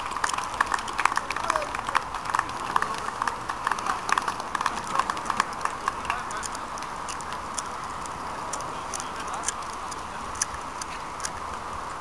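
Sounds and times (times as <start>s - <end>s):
small crowd applauding: 0.0s - 7.6s.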